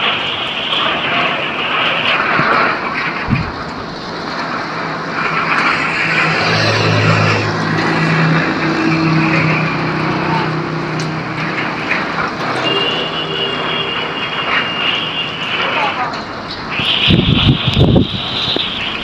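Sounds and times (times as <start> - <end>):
heavy rain pouring: 0.0 - 19.0
thin high tone: 10.2 - 16.0.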